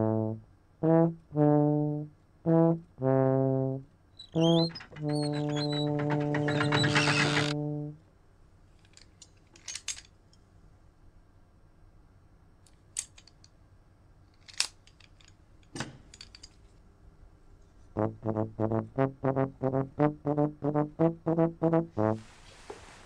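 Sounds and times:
staccato brass tune: 0.0s - 8.0s, 18.0s - 22.2s
metal instrument clicks: 12.7s - 13.6s, 14.3s - 16.6s.

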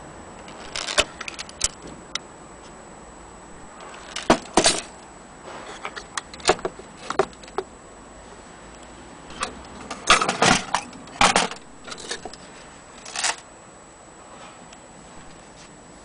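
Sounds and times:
metal clock parts clinking: 9.3s - 12.4s.

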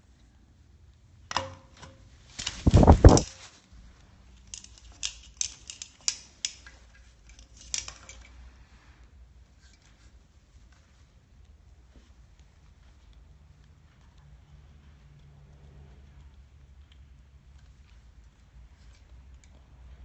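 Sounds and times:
beak clicking on plastic cup: 4.4s - 6.7s.

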